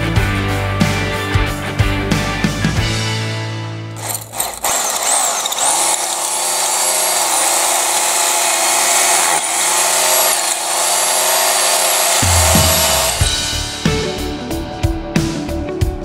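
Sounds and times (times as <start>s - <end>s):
power drill whining: 4.0s - 13.8s.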